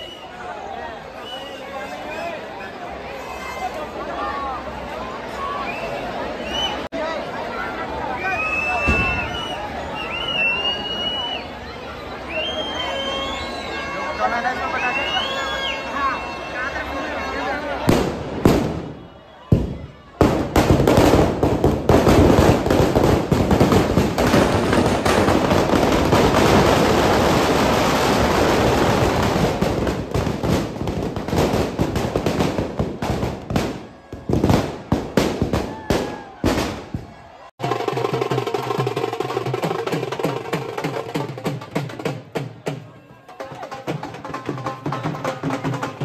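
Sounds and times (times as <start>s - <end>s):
firecrackers banging: 17.9s - 43.0s
music with drums and percussion: 37.6s - 46.0s.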